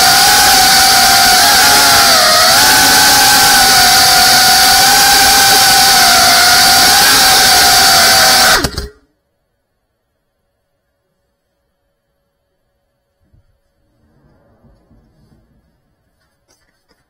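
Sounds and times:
drone motors whining: 0.0 - 9.0.

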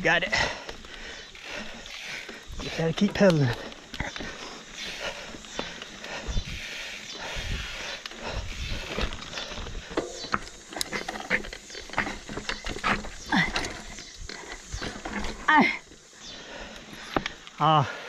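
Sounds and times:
mountain bike clattering over rocks: 0.0 - 6.4, 8.1 - 16.1
rider groaning: 0.0 - 17.0.

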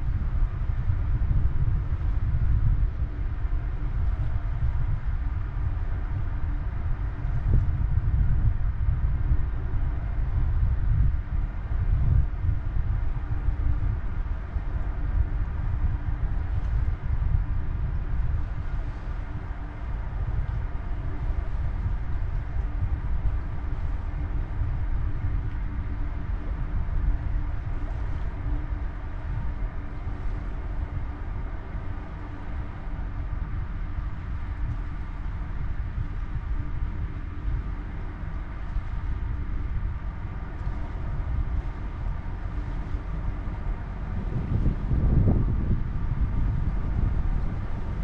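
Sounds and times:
faint even hum: 0.0 - 48.0
wind buffeting microphone: 0.0 - 48.0
ship machinery rumbling: 11.2 - 48.0.

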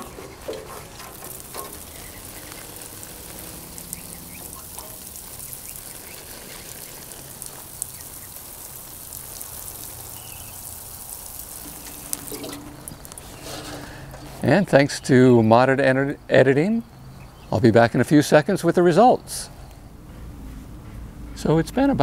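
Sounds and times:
water sprinkling onto plants: 0.0 - 14.6.

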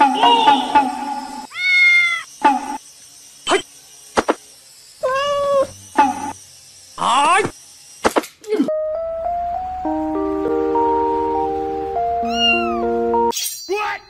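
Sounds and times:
cat meowing: 1.5 - 2.3, 5.0 - 5.7, 12.2 - 12.8.

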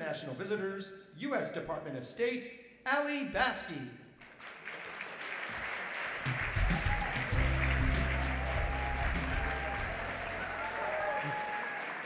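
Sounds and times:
audience applauding: 4.2 - 12.0
walk-on music with deep bass: 6.6 - 10.7.

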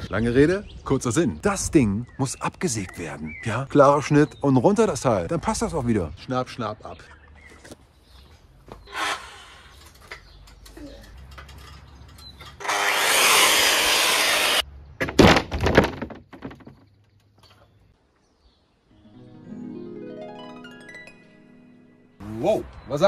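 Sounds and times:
electric saw cutting wood: 8.9 - 9.8, 12.6 - 14.6
sharp cracks and knocks: 15.0 - 17.6.

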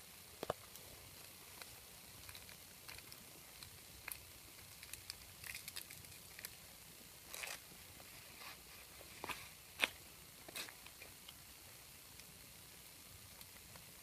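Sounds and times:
leaf crinkling and crackling: 0.4 - 6.6, 7.2 - 11.4.

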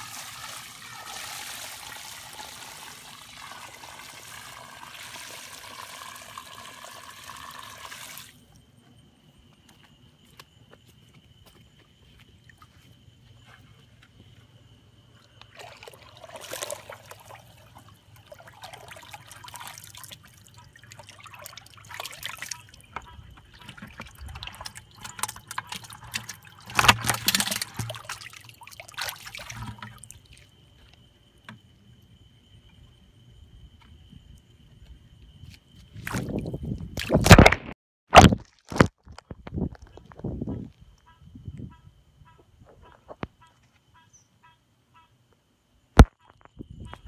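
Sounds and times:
water splashing and pouring: 0.0 - 8.5, 15.5 - 30.5.

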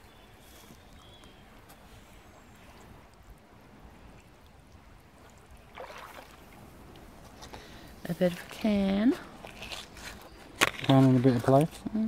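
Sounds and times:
water trickling and lapping: 0.0 - 11.8
water splash: 5.2 - 6.7.

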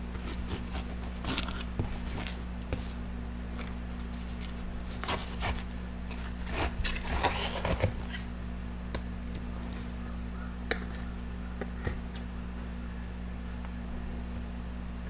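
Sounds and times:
steady low hum: 0.0 - 15.0
knife scraping fish fillet: 0.2 - 2.3, 4.2 - 8.3.

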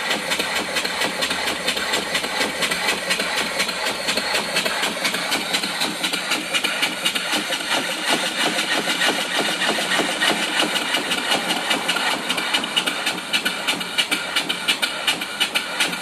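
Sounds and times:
steam engine exhaust chuffs: 0.0 - 16.0
steam hissing: 0.0 - 16.0.

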